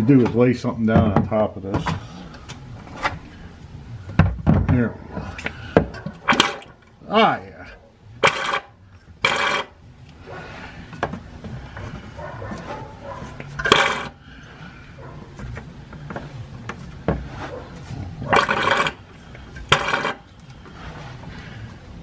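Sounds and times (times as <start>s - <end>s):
hand pump gurgling oil: 9.2s - 9.7s, 13.6s - 14.2s, 18.3s - 19.0s, 19.6s - 20.2s.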